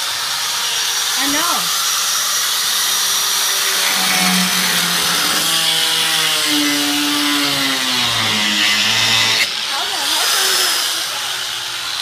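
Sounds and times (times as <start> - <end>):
handheld power tool running: 3.5 - 11.2.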